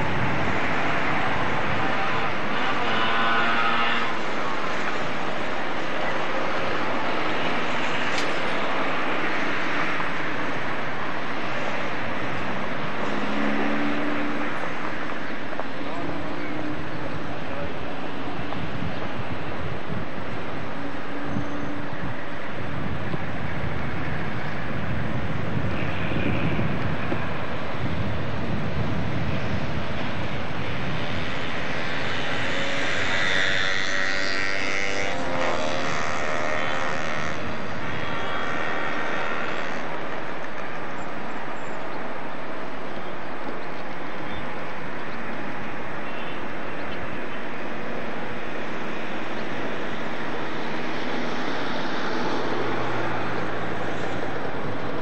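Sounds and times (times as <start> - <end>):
city traffic noise: 0.0 - 55.0
wind noise on microphone: 0.0 - 55.0.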